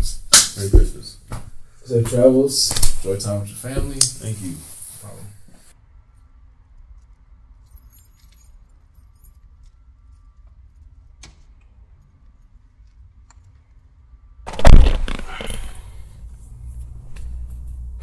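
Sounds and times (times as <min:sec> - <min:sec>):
loud low thump: 0:14.5 - 0:15.4.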